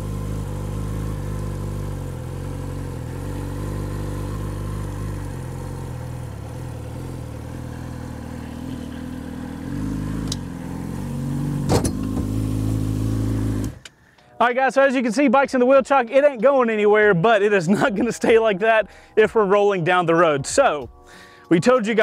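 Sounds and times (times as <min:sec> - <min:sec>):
motorcycle engine at low revs: 0:00.0 - 0:14.0.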